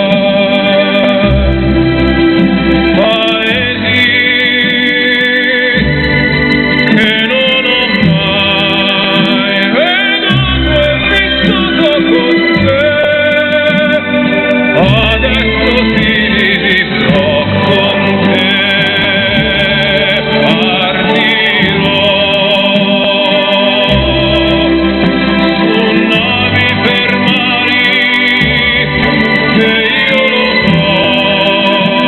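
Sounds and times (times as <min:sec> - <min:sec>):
song over loudspeakers: 0:00.0 - 0:32.0.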